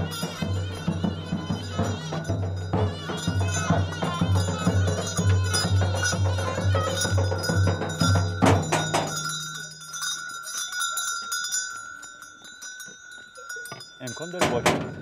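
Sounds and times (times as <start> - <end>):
drum and reed pipe folk music: 0.0 - 9.8
bell jingling: 0.0 - 15.0.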